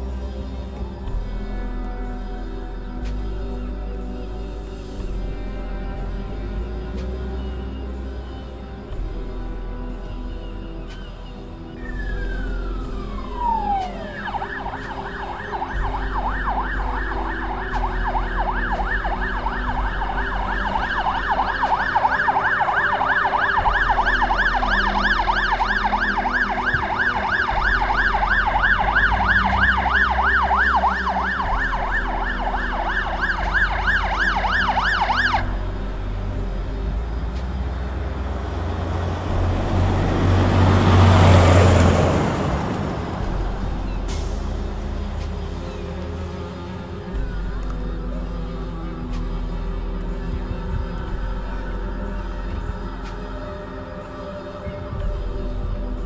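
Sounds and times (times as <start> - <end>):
low engine rumble: 0.0 - 56.0
fire engine siren: 10.9 - 56.0.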